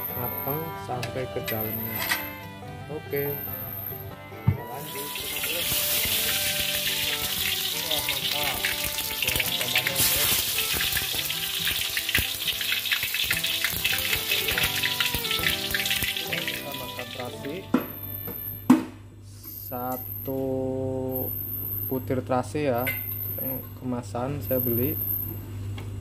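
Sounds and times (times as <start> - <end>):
tomatoes sizzling in hot oil: 4.7 - 18.6.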